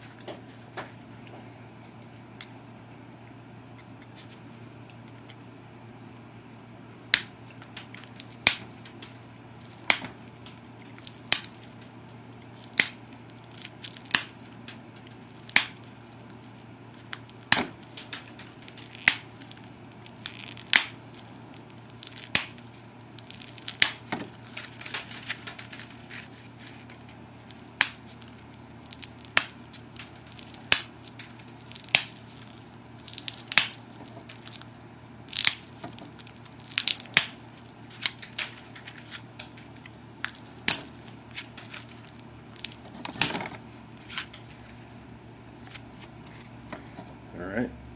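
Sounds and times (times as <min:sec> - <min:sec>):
stone flake snapping off: 0:07.1 - 0:44.4.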